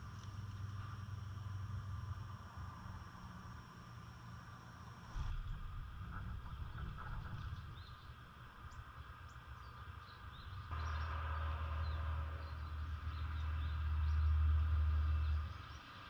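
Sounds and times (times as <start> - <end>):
steady low rumble: 0.0 - 10.9.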